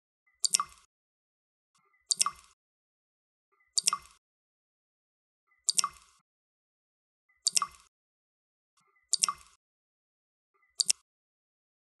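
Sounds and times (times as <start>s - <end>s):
water drops plinking into water: 0.4s - 0.9s, 2.1s - 2.6s, 3.8s - 4.2s, 5.7s - 6.2s, 7.4s - 7.9s, 9.1s - 9.6s, 10.8s - 11.0s.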